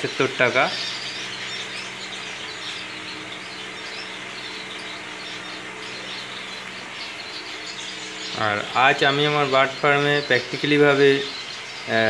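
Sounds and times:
small birds chirping: 0.0 - 12.0
steady low hum: 0.0 - 12.0.

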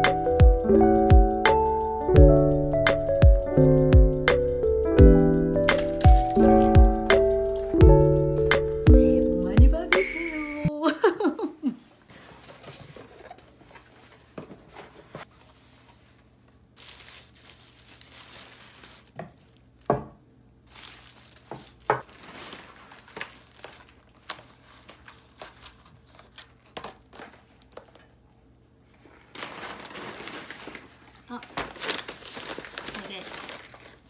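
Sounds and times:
paper packing crinkling: 5.7 - 7.8, 12.1 - 19.9, 20.6 - 28.2, 29.0 - 34.0
items knocking on countertop: 19.2 - 20.2.

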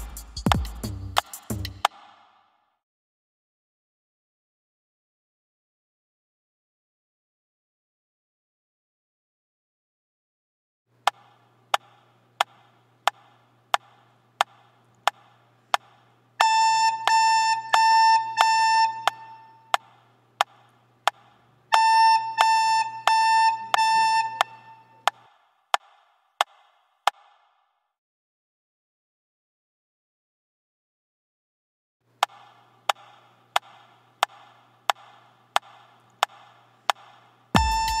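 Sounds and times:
recorder playing notes: 16.4 - 19.8, 21.7 - 25.1, 37.6 - 38.0
metronome clicking: 16.9 - 19.5.

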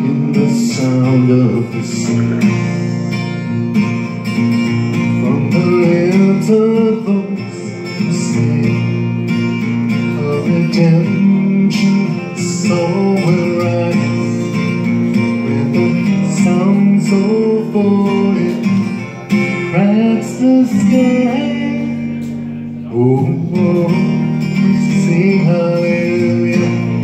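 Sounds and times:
man singing: 0.0 - 27.0
strummed acoustic guitar: 0.0 - 27.0.

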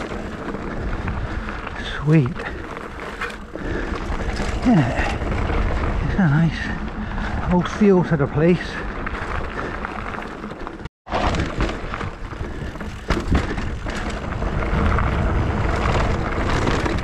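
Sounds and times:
bike knocking and rattling: 0.0 - 17.0
bike tyres rolling over rough ground: 0.0 - 17.0
wind noise on microphone: 11.1 - 17.0.

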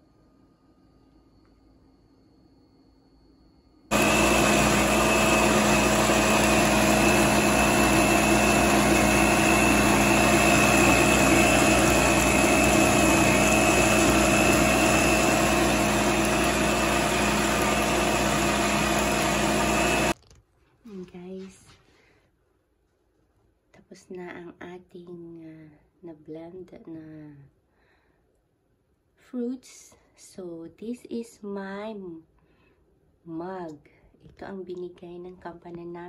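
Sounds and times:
blender motor whining: 3.9 - 20.2.

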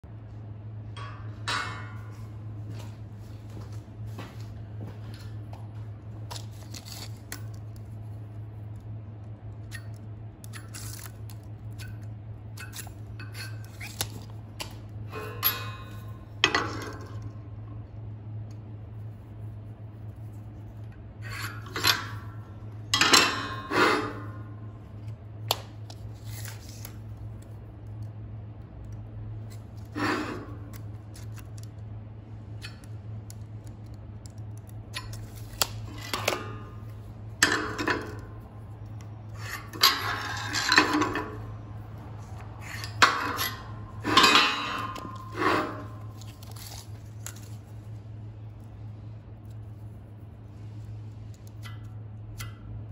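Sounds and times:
steady low hum: 0.0 - 52.9
metal tools clinking on steel: 15.1 - 17.2, 21.2 - 24.5, 39.4 - 41.6, 42.3 - 46.3
chalk scraping on steel: 29.9 - 30.8, 42.6 - 46.2.

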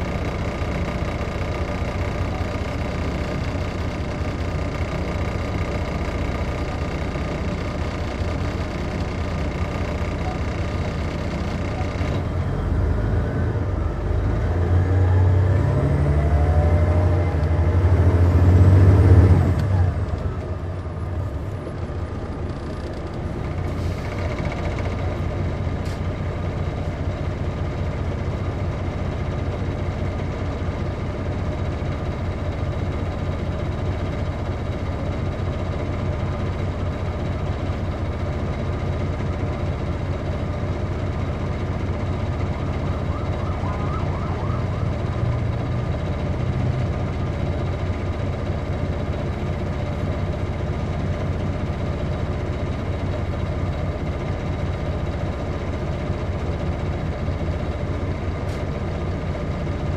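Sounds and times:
bus diesel engine running: 0.0 - 59.9.

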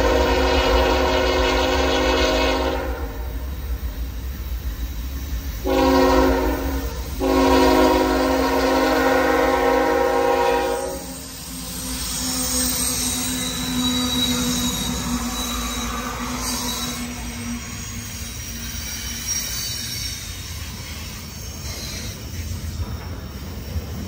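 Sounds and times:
locomotive air horn blasts: 0.0 - 3.4, 5.6 - 11.2
low rumble of train: 0.0 - 24.0.

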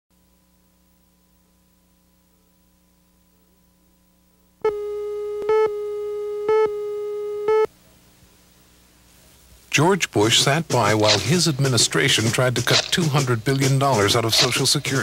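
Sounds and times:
faint mains hum: 0.1 - 15.0
buzzy electronic countdown tone: 4.6 - 7.7.

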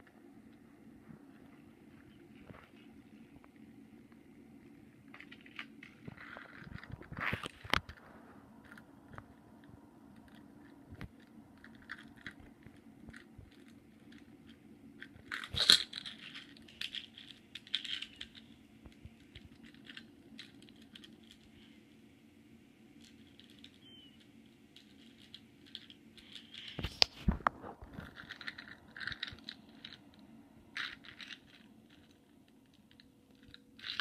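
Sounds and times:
low steady hum: 0.0 - 34.0
toy car rolling on wood: 5.1 - 9.4, 10.1 - 21.8, 23.0 - 34.0.

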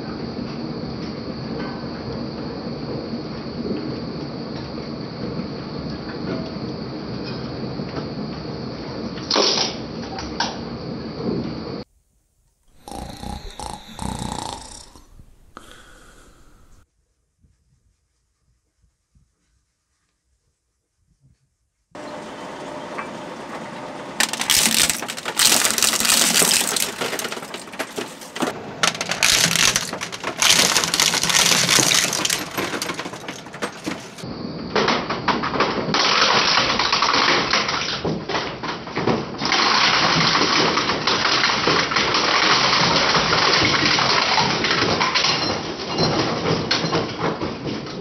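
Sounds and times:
shredder crunching plastic: 22.0 - 34.2, 39.4 - 45.2.

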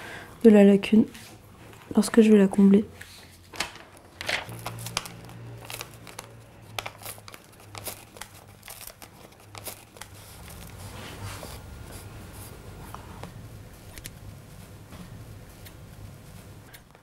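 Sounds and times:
low steady hum: 0.0 - 17.0
tissue paper rustling: 3.0 - 11.6.

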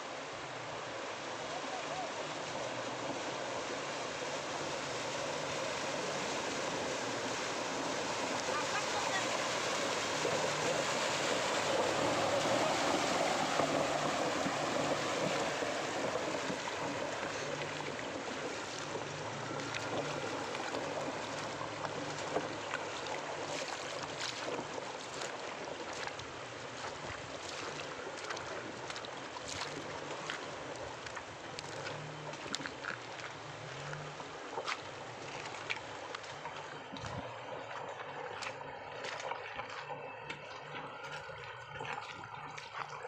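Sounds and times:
low engine hum: 0.0 - 43.0
water splashing around wheels: 0.0 - 43.0.

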